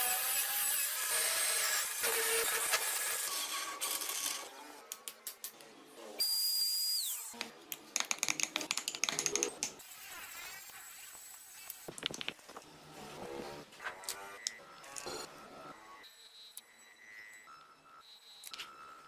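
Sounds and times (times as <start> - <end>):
high-pitched small rotary tool: 0.0 - 4.6.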